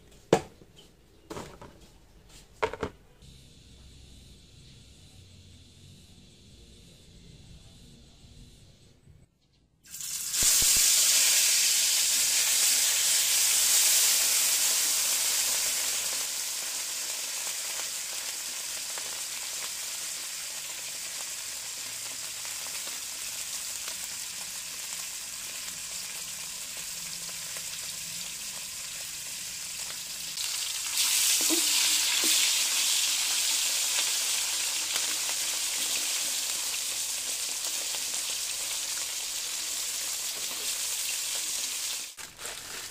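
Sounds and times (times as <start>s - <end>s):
fish sizzling in hot oil: 9.9s - 42.9s.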